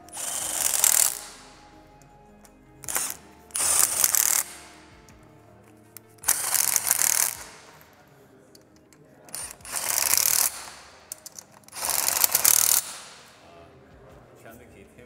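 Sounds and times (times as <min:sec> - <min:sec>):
machine running in bursts: 0:00.0 - 0:01.5, 0:02.8 - 0:05.0, 0:06.2 - 0:07.8, 0:09.3 - 0:13.3.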